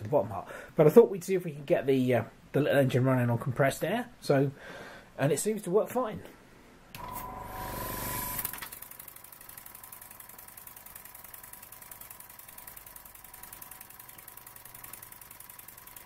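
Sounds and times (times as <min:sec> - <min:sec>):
small air compressor running: 0:07.0 - 0:16.0
model engine ticking over: 0:08.8 - 0:16.0.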